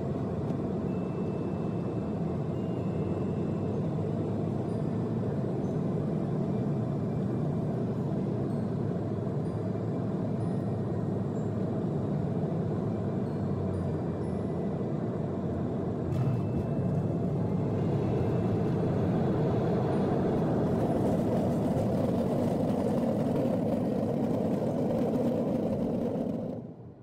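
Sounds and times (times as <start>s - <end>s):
jet cabin rumble: 16.1s - 27.0s.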